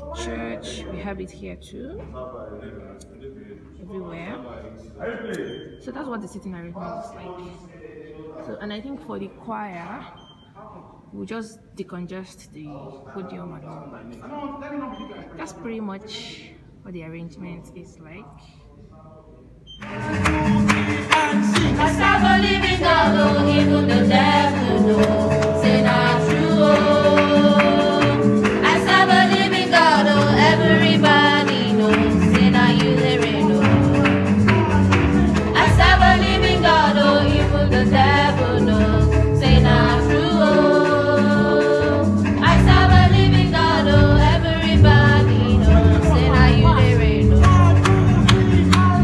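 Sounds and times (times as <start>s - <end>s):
choir singing gospel song: 19.8s - 49.0s
instrumental accompaniment: 19.8s - 49.0s.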